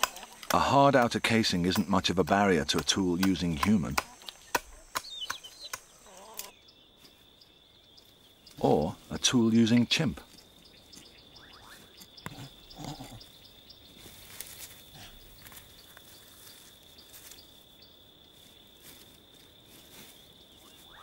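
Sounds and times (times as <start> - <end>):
high insect drone: 0.1 - 21.0
chimpanzee grunting: 6.0 - 6.5, 12.2 - 13.4.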